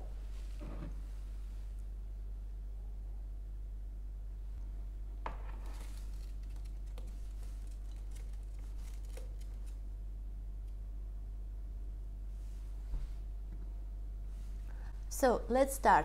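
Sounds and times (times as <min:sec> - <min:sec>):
steady low hum: 0:00.0 - 0:16.0
scratchy rustles: 0:05.5 - 0:09.8.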